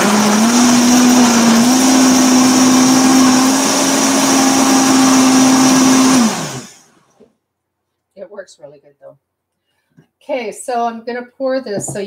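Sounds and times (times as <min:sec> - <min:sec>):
blender motor running: 0:00.0 - 0:07.2.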